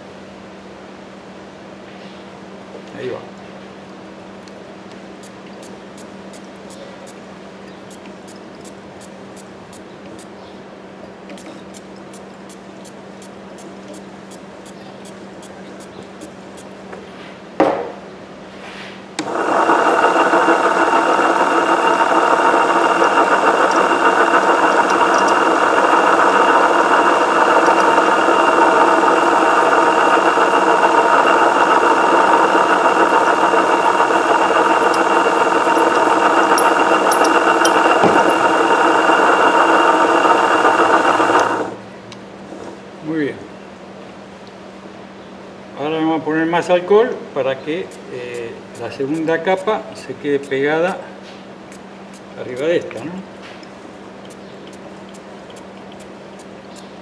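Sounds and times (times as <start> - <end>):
short knock: 17.6 - 18.0
coil-winding machine motor running: 19.2 - 41.8.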